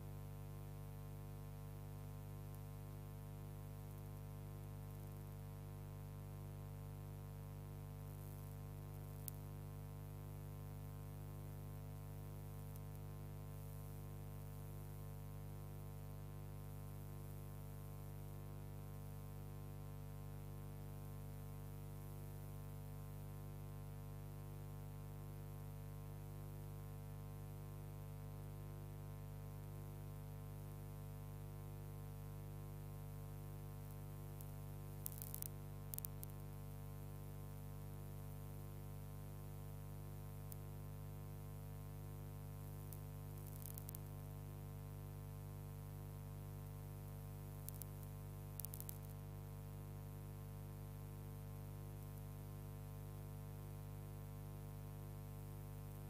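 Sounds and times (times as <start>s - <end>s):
electrical mains hum: 0.0s - 26.9s, 27.6s - 56.0s
faint click: 8.3s - 9.4s, 12.7s - 13.0s, 47.6s - 49.2s.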